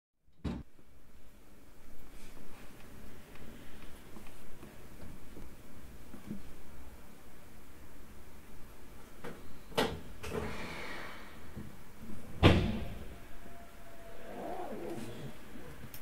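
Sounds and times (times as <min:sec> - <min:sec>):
train doors closing thud: 0:12.3 - 0:13.2.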